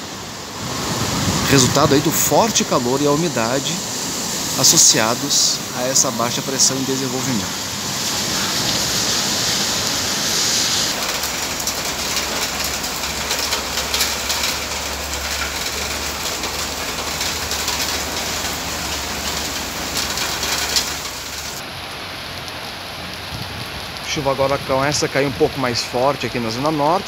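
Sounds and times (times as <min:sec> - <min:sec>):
rain hissing: 0:00.0 - 0:27.0
raindrops pattering on surfaces: 0:00.0 - 0:27.0.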